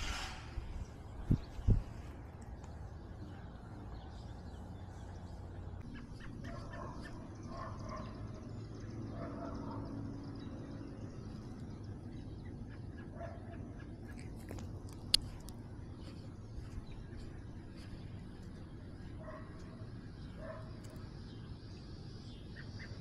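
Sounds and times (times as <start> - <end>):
steady low rumble: 0.0 - 23.0
faint bird calls: 5.8 - 8.5, 12.1 - 23.0.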